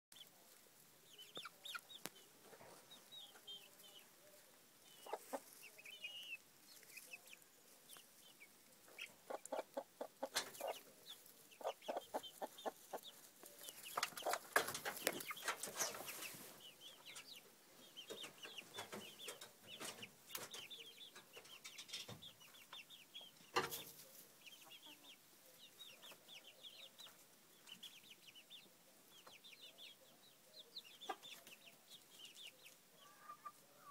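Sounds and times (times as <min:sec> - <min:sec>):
chickens clucking: 0:00.2 - 0:33.9
rustling in straw: 0:15.0 - 0:16.6.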